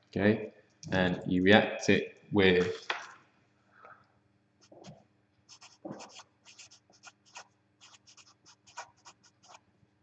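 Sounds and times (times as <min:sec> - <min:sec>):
marker scratching on paper: 0:04.6 - 0:09.6.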